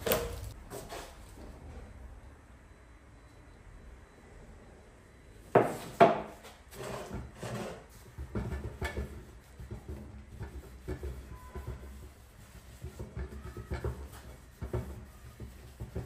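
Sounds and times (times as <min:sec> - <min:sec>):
cloth rubbing on plastic: 0:09.1 - 0:16.0.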